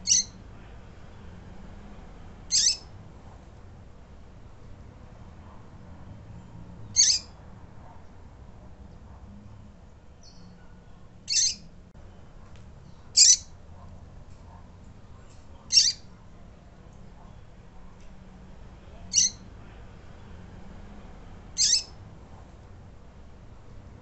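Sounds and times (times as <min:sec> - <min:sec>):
bird chirps: 0:00.0 - 0:00.4, 0:02.5 - 0:02.9, 0:06.8 - 0:07.4, 0:11.3 - 0:11.7, 0:12.9 - 0:13.5, 0:15.7 - 0:16.1, 0:19.1 - 0:19.4, 0:21.6 - 0:22.0.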